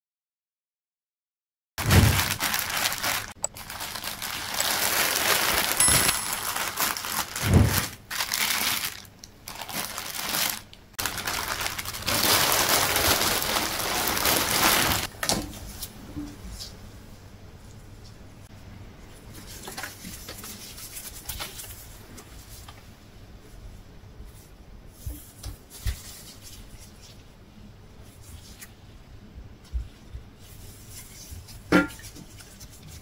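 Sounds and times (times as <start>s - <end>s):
plastic bag crinkling: 1.8s - 15.2s.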